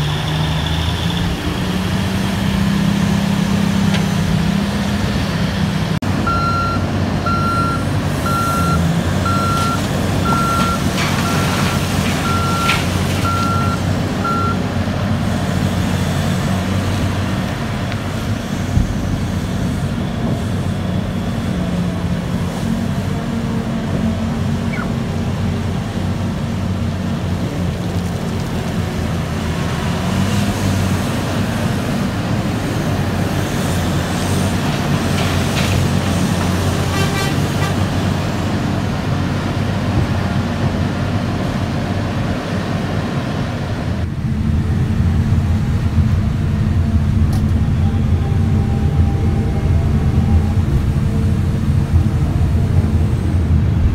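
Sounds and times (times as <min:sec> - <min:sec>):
heavy diesel engines running: 0:00.0 - 0:53.9
reversing alarm beeping: 0:06.2 - 0:14.6, 0:47.6 - 0:50.6.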